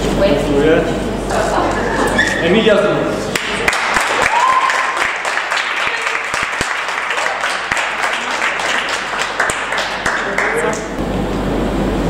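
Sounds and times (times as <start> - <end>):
people clapping: 3.3 - 11.0.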